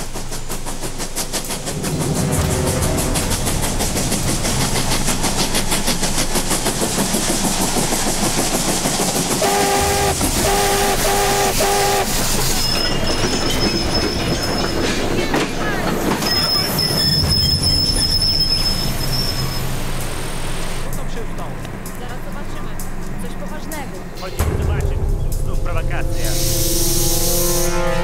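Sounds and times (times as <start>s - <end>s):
wheels screeching on rails: 0.0s - 24.4s
steam locomotive chuffing: 0.0s - 28.0s
steam whistle blasts: 9.4s - 14.2s, 26.1s - 28.0s.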